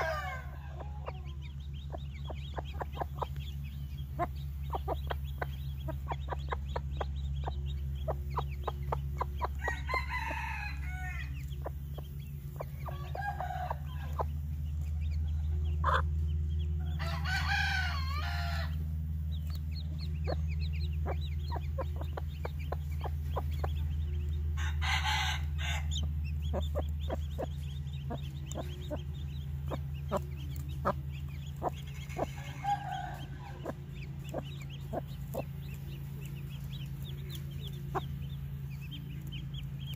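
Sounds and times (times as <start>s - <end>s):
rooster crowing: 0.0s - 1.6s, 9.5s - 11.4s, 12.8s - 14.3s, 16.8s - 18.8s, 24.6s - 26.1s, 32.0s - 33.8s
hen clucking softly: 0.0s - 10.2s, 11.4s - 17.0s, 19.4s - 39.9s
chicks peeping: 0.0s - 39.9s
steady low hum: 0.0s - 39.9s.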